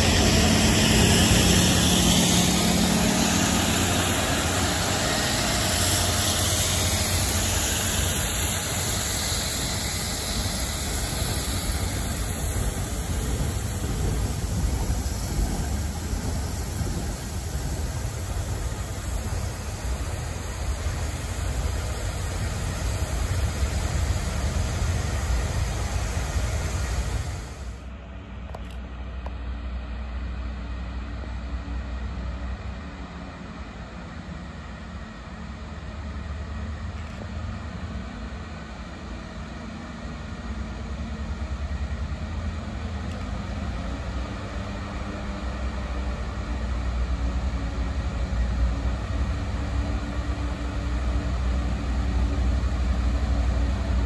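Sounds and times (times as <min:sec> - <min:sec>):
water spray hissing: 0:00.0 - 0:27.2
diesel engines rumbling: 0:00.0 - 0:54.0
train wheels rumbling: 0:00.0 - 0:54.0.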